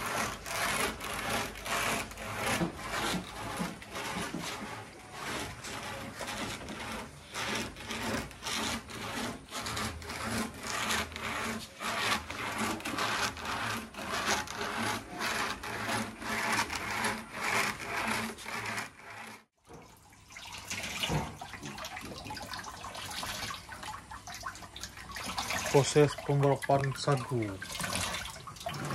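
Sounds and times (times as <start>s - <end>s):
palm trunk rasping on grater: 0.0s - 19.5s
wet pulp worked by hand: 0.0s - 28.9s.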